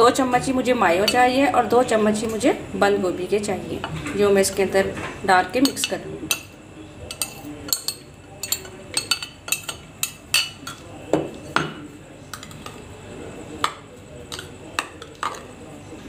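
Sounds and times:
metal spoon clinking on glass bowl: 5.6s - 10.8s.

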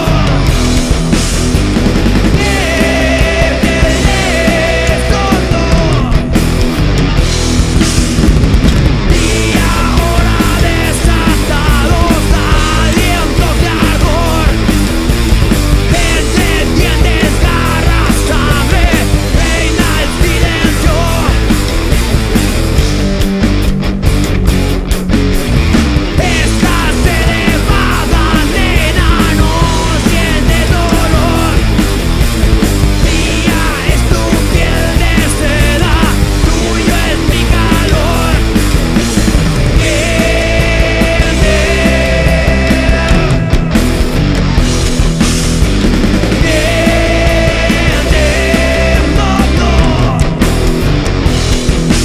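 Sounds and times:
man singing lead vocal: 0.0s - 0.8s, 2.1s - 6.4s, 9.1s - 14.8s, 15.8s - 21.8s, 26.2s - 32.0s, 33.0s - 39.0s, 39.6s - 43.9s, 46.3s - 50.7s
rock band playing live: 0.0s - 52.0s.

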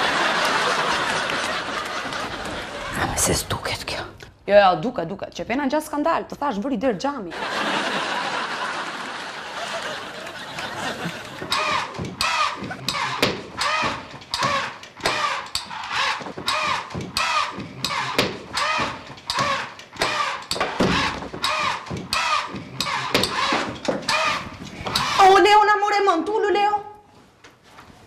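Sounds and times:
rhythmic mechanical clicking: 11.0s - 25.2s.

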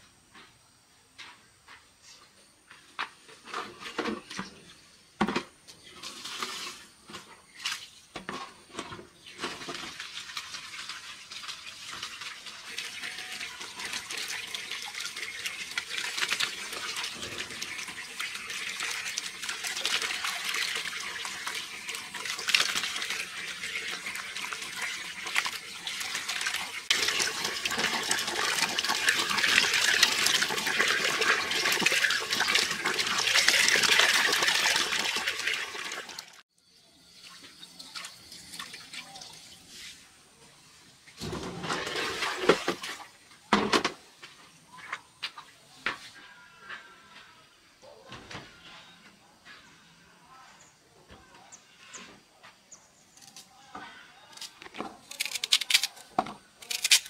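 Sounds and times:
running water rushing: 9.7s - 36.4s.

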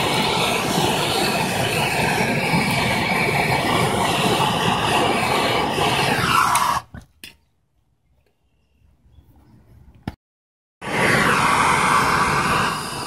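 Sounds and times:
propane torch hissing: 0.0s - 7.0s, 10.8s - 13.0s.

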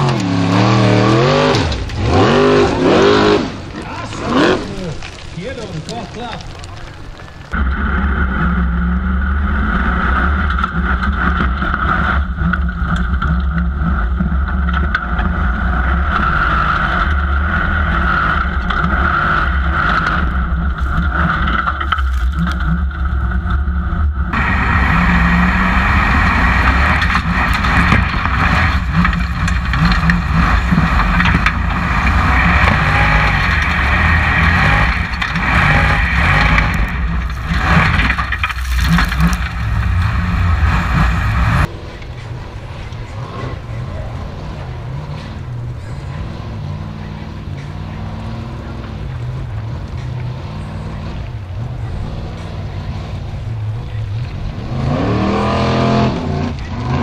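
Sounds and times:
car engine running under load: 0.0s - 57.0s.

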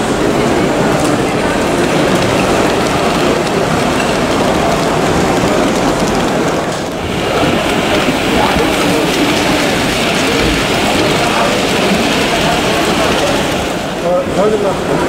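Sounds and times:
crowd babble: 0.0s - 15.0s
model trains running: 0.0s - 15.0s.

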